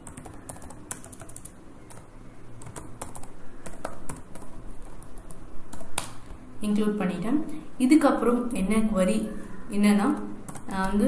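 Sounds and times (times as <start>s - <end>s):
computer keyboard typing: 0.0s - 6.2s, 10.1s - 11.0s.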